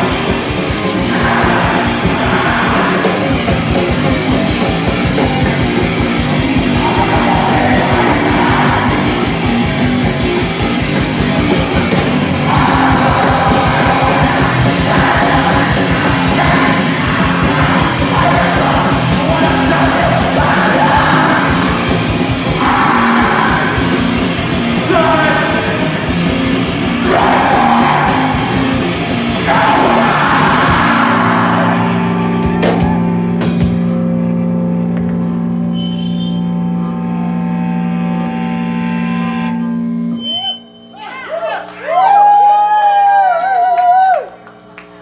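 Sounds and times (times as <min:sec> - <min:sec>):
singer yelling: 0:00.0 - 0:04.0, 0:05.1 - 0:10.5, 0:12.3 - 0:33.2
drum kit fast beat: 0:00.0 - 0:31.4
electric guitar: 0:00.0 - 0:45.0.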